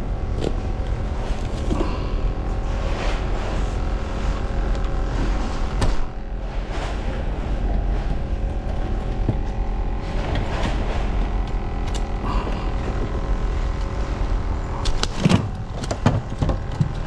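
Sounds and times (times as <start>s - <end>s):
low engine hum: 0.0s - 17.0s.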